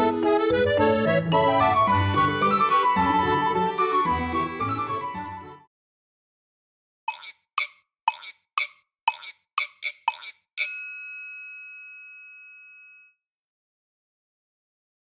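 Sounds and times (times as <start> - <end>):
bell chime: 10.6 - 13.2.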